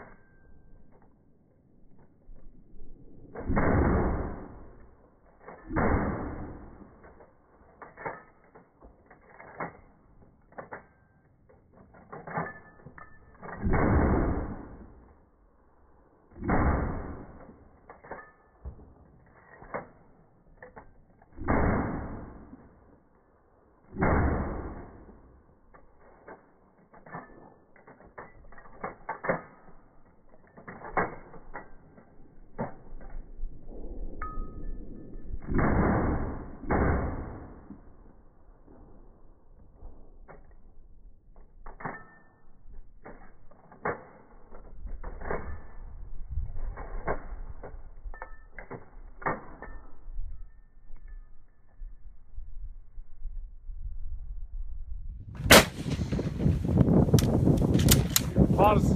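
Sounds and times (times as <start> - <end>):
slowed rifle shots booming: 2.0 - 8.5, 12.0 - 50.1, 55.4 - 58.9
rifle bolt clicks and clacks: 5.4 - 14.1, 25.6 - 33.2, 57.1 - 58.4.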